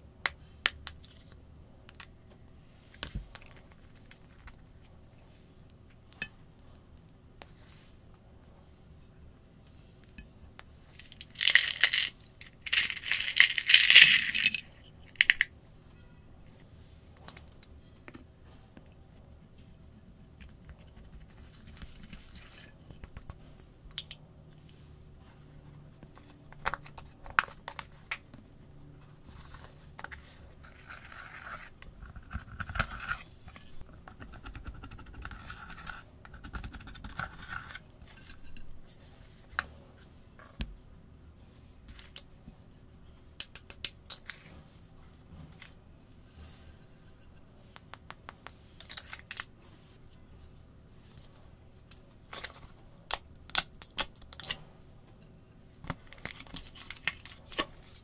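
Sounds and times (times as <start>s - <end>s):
handling plastic items: 10.9s - 15.5s.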